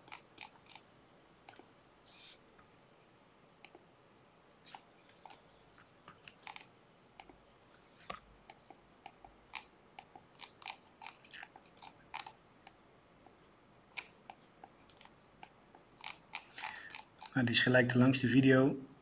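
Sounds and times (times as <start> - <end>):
computer mouse clicking: 0.0 - 0.8, 4.7 - 7.4, 8.0 - 13.4, 14.0 - 17.4.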